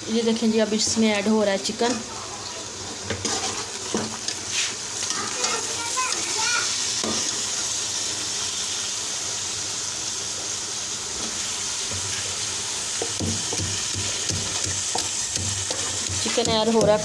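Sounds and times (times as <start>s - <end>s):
chicken sizzling in a pan: 0.0s - 17.0s.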